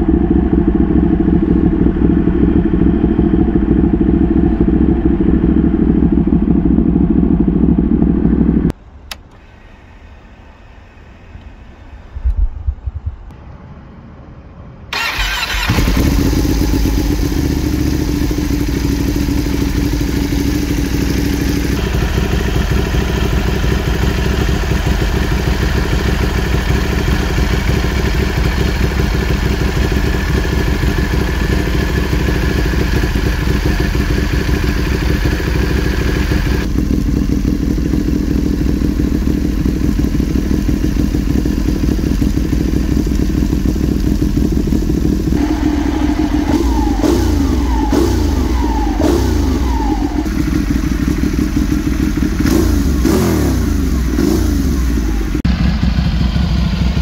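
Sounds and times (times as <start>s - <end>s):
motorcycle engine idling: 0.0s - 11.9s, 14.9s - 57.0s.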